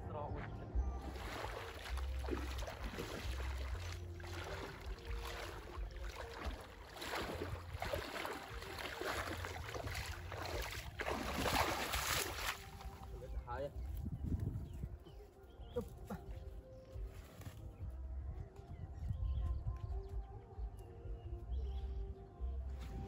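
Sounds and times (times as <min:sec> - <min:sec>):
water splashing and sloshing: 0:00.4 - 0:14.0.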